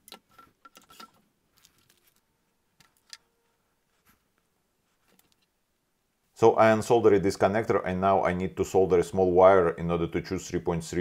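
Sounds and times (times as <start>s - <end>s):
small parts clicking and rustling: 0.0s - 3.5s, 5.0s - 5.6s.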